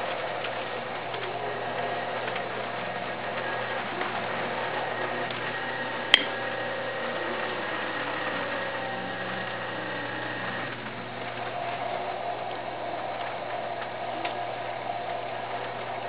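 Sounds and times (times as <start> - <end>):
potter's wheel humming: 0.0 - 16.0
sharp click: 6.1 - 6.3.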